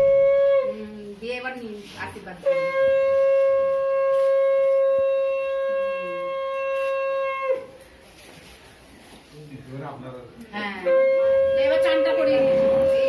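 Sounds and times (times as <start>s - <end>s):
conch shell blown: 0.0s - 1.2s, 2.4s - 8.1s, 10.8s - 13.0s.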